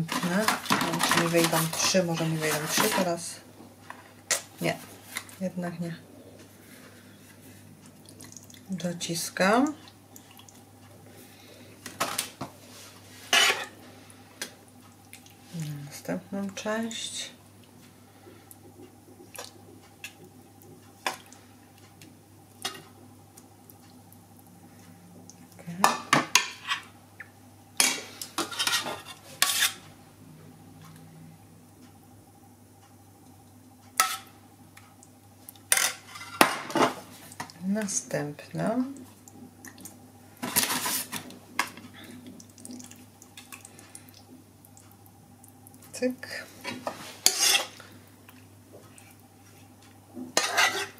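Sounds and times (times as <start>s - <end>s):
pasta sheets rustling scrape: 0.0s - 3.2s, 40.4s - 41.2s
steady low hum: 0.0s - 50.9s.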